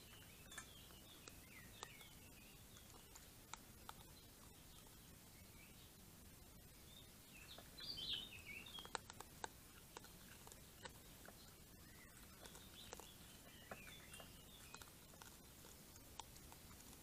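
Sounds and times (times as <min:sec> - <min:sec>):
animal chewing kibble: 0:00.0 - 0:05.7, 0:07.0 - 0:17.0
songbird warbling: 0:00.0 - 0:05.9, 0:06.6 - 0:16.0.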